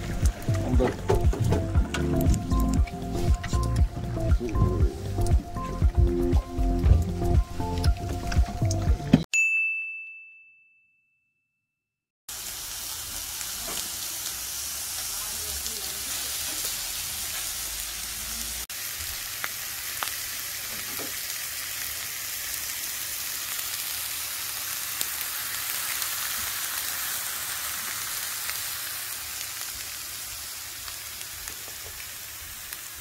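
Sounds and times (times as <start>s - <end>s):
fish sizzling on a griddle: 12.3s - 33.0s.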